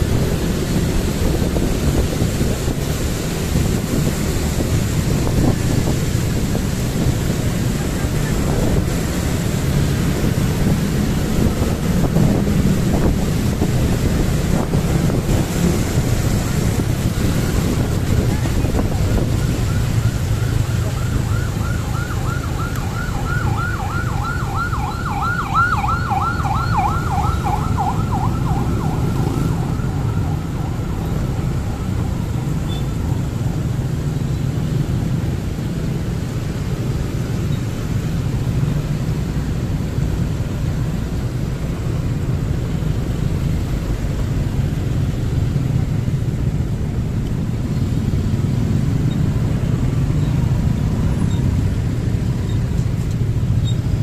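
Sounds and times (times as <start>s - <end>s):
emergency siren yelping: 18.6s - 33.4s.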